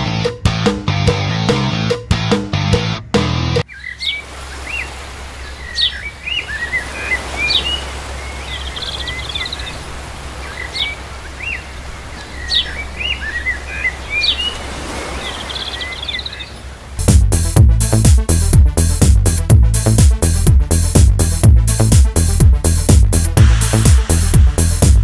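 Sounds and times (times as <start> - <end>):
birds chirping and calling: 3.6 - 17.0.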